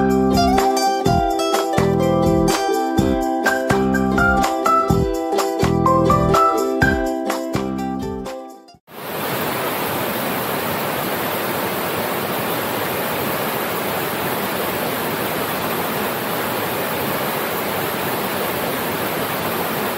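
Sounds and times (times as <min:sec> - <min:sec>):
waterfall rushing: 0:08.9 - 0:19.9.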